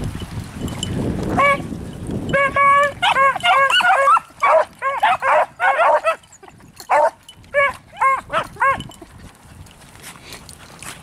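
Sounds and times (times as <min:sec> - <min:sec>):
hounds barking: 0:02.4 - 0:06.3, 0:06.9 - 0:08.8.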